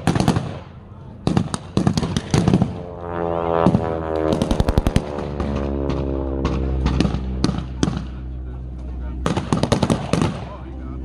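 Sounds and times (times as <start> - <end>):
droning engine: 2.7 - 11.0
machine-gun burst: 4.4 - 5.1
single gunshots: 9.2 - 10.6.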